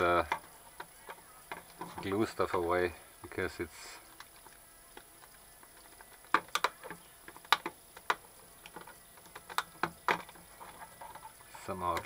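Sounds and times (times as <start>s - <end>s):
sharp plastic clicks and scrapes: 4.2s - 12.0s.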